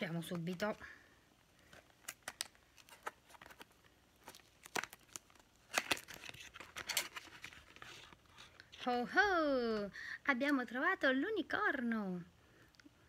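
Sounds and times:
cardboard box crackling and snapping: 1.6s - 8.4s.

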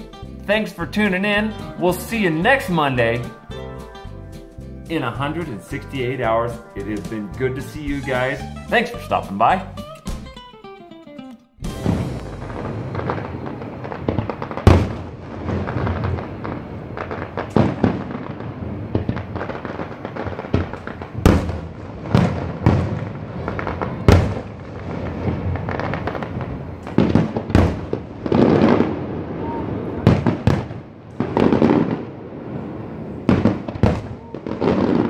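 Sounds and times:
firework crackling: 4.9s - 9.6s, 11.6s - 35.0s
firework shells booming: 11.6s - 35.0s.

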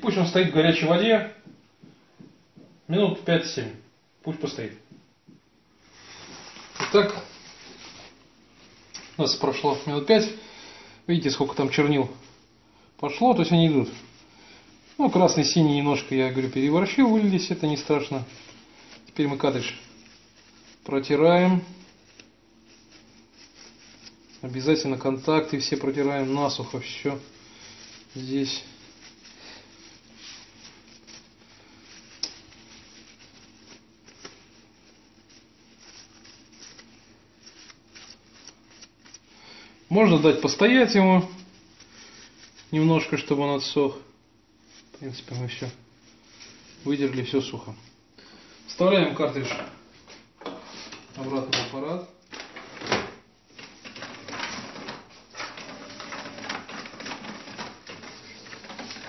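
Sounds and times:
paper tissue rustling on plastic: 5.4s - 59.0s.

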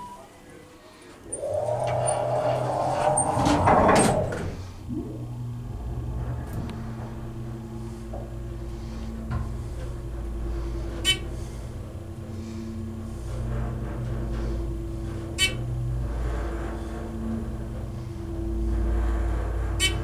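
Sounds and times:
hydraulic elevator hum: 0.0s - 20.0s.

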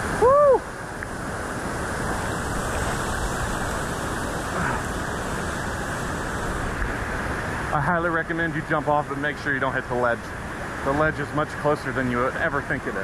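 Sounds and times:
waterfall rushing: 0.8s - 7.8s.

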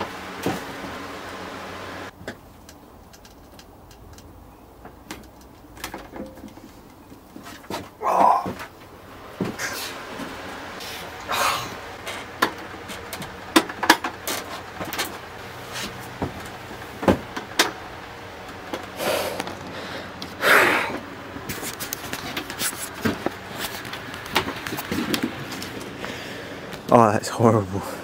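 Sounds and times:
electrical crackles and pops: 7.9s - 27.0s.

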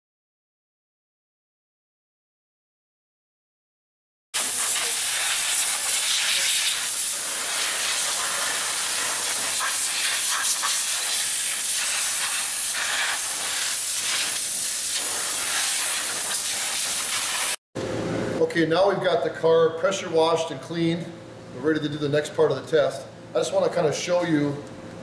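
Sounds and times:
pressure washer spraying water: 4.4s - 17.6s.

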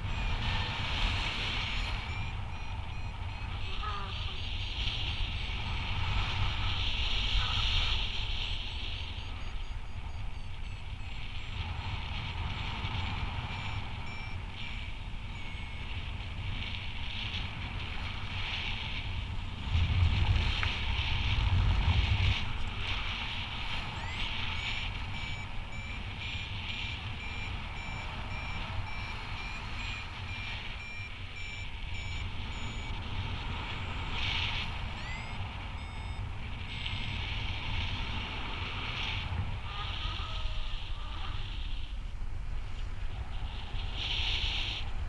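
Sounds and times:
variometer beeping: 0.0s - 21.0s, 21.8s - 38.8s
wind noise on microphone: 0.0s - 45.0s.

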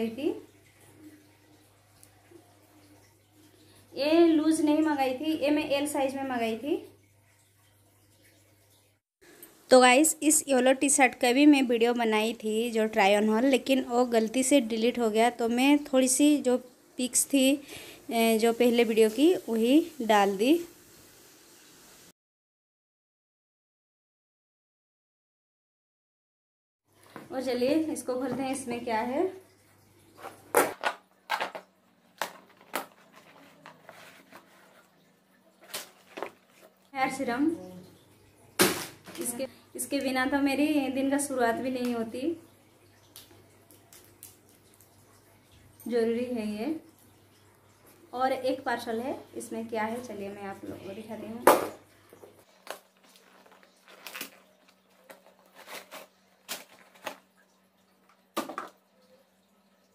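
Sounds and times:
box rustling: 52.6s - 57.2s
cardboard and tape ripping: 52.6s - 57.2s
parcel packaging tearing: 52.6s - 57.3s.

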